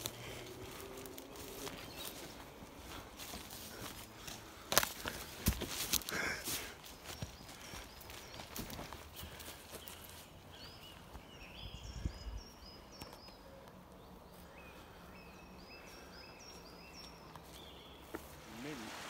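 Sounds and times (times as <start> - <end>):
small birds chirping: 0.0 - 18.9.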